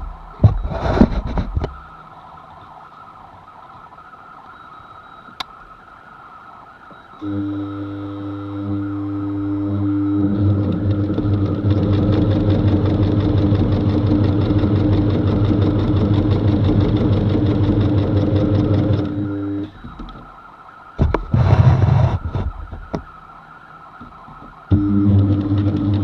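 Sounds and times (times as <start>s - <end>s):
sewing machine stitching: 10.2s - 19.2s
short loud burst of noise: 21.0s - 22.6s.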